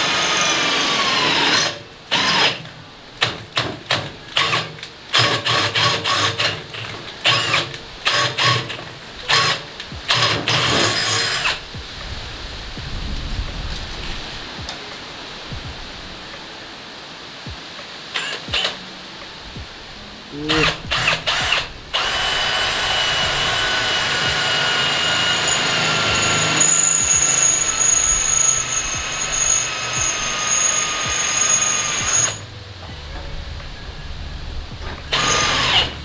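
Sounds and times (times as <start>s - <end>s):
power drill whining: 0.0s - 2.7s, 4.3s - 11.6s, 20.6s - 32.5s, 35.1s - 36.0s
thin high squeal: 25.4s - 32.5s.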